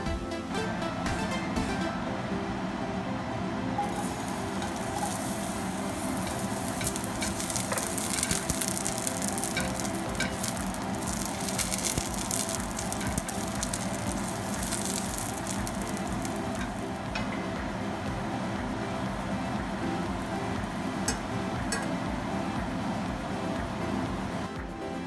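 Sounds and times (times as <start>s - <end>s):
spatula stirring: 3.8s - 16.9s
garlic sizzling in hot oil: 3.8s - 18.0s.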